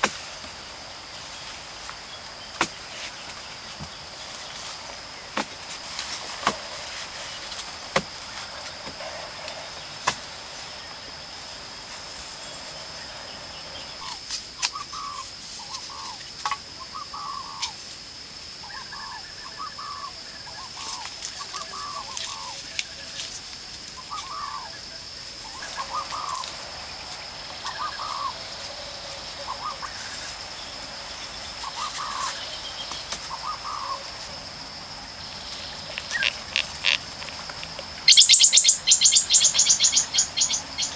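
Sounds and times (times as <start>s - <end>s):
high insect drone: 0.0s - 40.9s
bird calling: 13.9s - 34.3s, 38.0s - 40.9s.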